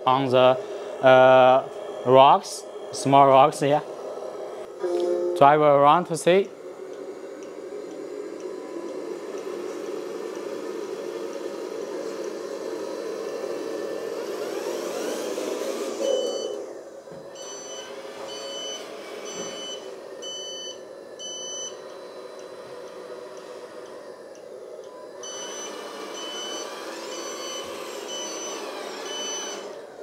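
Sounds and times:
toy truck motor whirring: 0:07.5 - 0:20.4, 0:21.2 - 0:30.0
short reversing beeps: 0:16.0 - 0:16.7, 0:17.4 - 0:21.8, 0:25.2 - 0:29.8.

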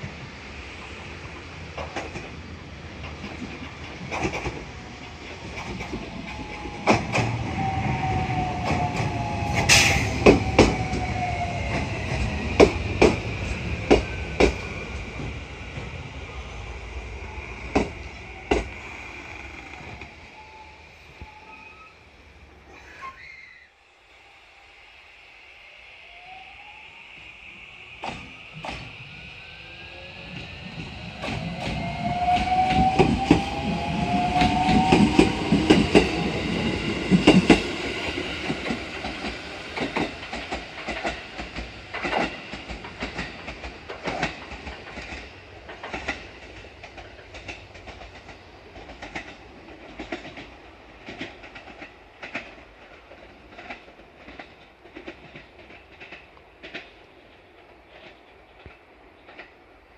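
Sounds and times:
train wheels clacking over rail joints: 0:01.7 - 0:02.4, 0:03.0 - 0:07.7, 0:08.5 - 0:15.9, 0:17.7 - 0:18.8, 0:30.8 - 0:59.7
rising whine: 0:05.9 - 0:22.0, 0:23.7 - 0:39.8.

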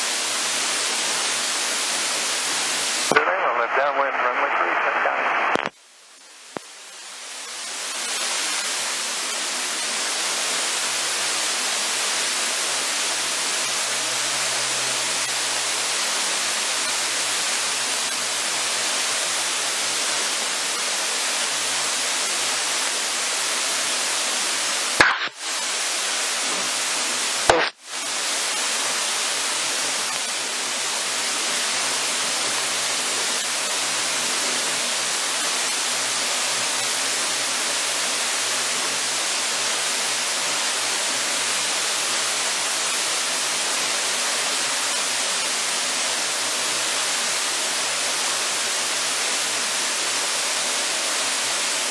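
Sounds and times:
radio static hiss: 0:00.0 - 0:51.9
sharp clicks: 0:05.5 - 0:05.8, 0:25.0 - 0:25.4.

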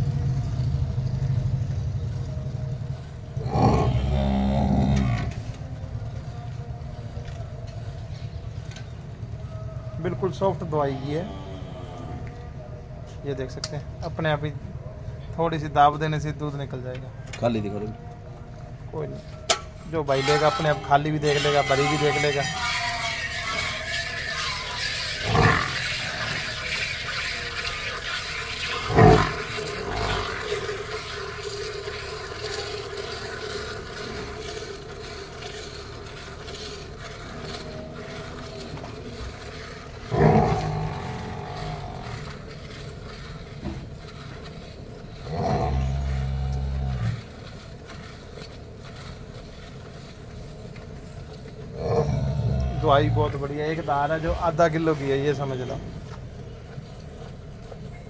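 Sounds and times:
low drone: 0:17.1 - 0:58.0
milk squirting into metal bucket: 0:20.0 - 0:51.6.

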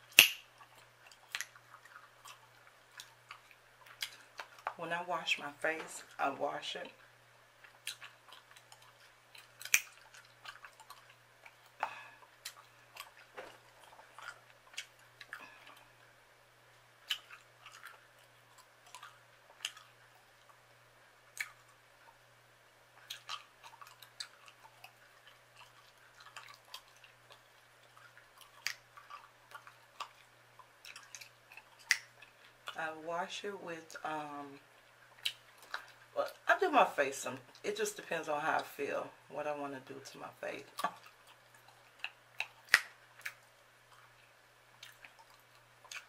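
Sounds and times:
chewing gum smacking: 0:00.0 - 0:04.8, 0:06.9 - 0:16.1, 0:17.0 - 0:22.3, 0:22.9 - 0:32.8, 0:34.5 - 0:36.4, 0:40.6 - 0:46.0
faint low hum: 0:00.0 - 0:46.0.

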